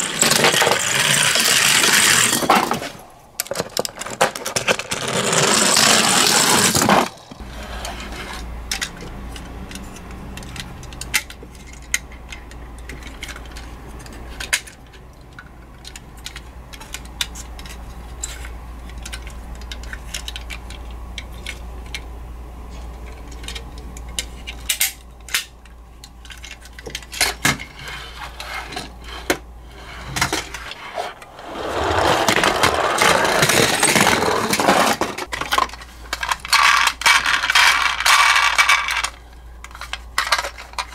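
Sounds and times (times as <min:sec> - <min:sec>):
toy car rolling down wooden ramp: 0:00.0 - 0:08.3, 0:30.3 - 0:35.3
paper tearing: 0:05.1 - 0:07.2.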